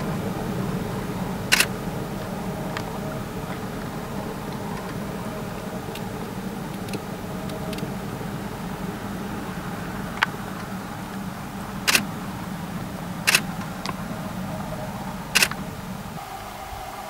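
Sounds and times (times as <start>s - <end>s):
low steady hum: 0.0s - 17.0s
faint clicks: 1.5s - 7.9s, 13.2s - 15.8s
camera shutter double click: 15.4s - 15.6s.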